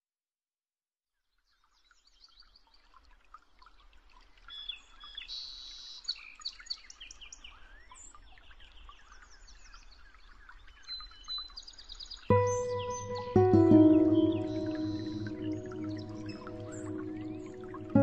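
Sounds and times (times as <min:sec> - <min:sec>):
songbirds singing and chirping: 0:04.5 - 0:18.0.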